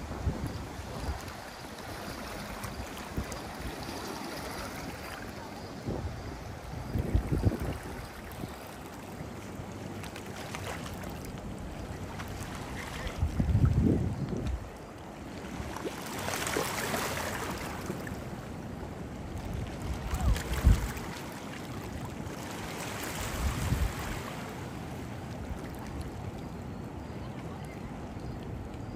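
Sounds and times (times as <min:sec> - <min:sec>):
wind buffeting microphone: 0:05.8 - 0:08.6, 0:12.7 - 0:14.8, 0:19.3 - 0:21.2, 0:23.2 - 0:24.2.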